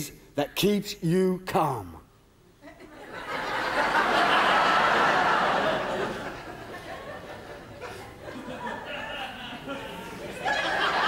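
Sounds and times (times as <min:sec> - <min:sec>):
audience laughing: 0:02.7 - 0:11.0.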